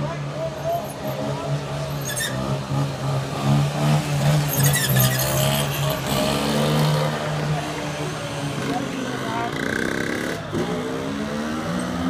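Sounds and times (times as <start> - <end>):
quad bike engine revving: 3.0 - 12.0.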